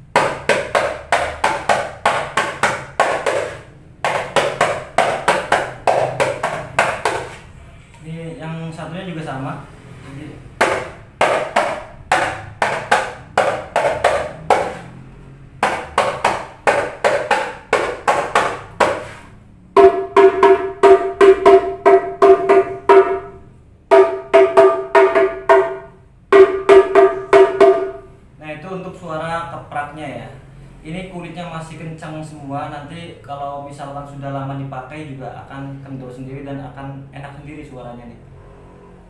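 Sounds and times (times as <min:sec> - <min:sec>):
frame drum hand slaps: 0:10.6 - 0:14.9, 0:23.9 - 0:28.0.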